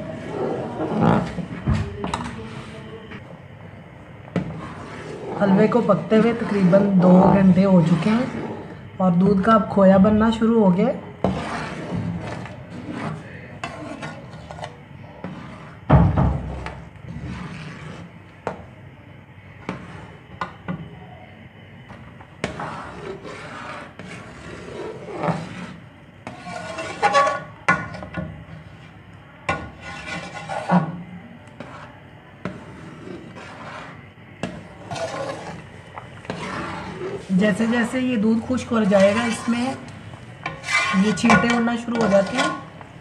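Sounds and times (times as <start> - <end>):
metal spoon scraping a pot: 4.3 - 9.7, 10.9 - 15.9, 16.5 - 18.2, 19.6 - 20.4, 21.9 - 42.8.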